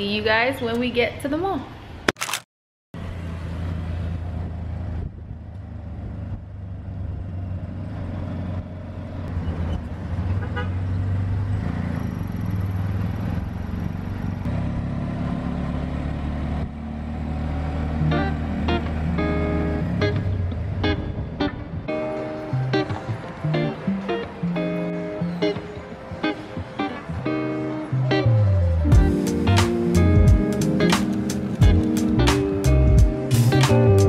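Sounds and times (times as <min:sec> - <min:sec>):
road and traffic noise: 0:00.0 - 0:02.4, 0:03.0 - 0:34.0
auto-rickshaw engine running: 0:03.0 - 0:21.4.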